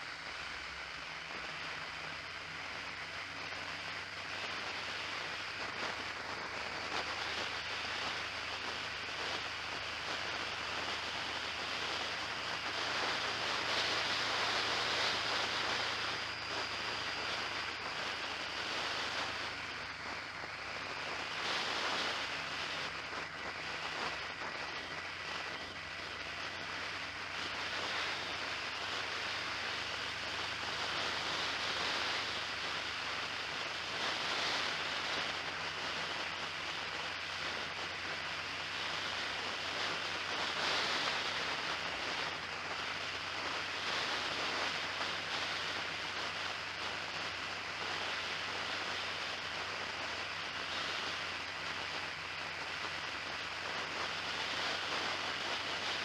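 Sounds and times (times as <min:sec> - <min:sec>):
low engine drone: 0:00.0 - 0:56.0
wind and road rush: 0:00.0 - 0:56.0.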